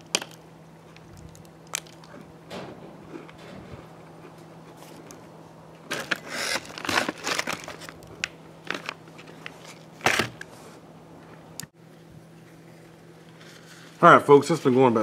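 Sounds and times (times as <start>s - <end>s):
plastic packaging crinkling: 5.9s - 10.5s.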